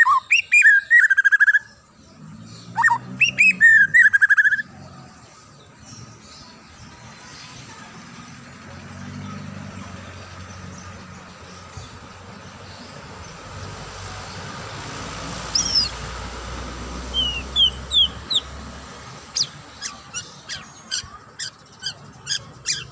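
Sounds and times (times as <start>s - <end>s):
bird whistling: 0.0s - 1.8s, 2.8s - 4.7s, 15.5s - 16.0s, 17.1s - 18.5s.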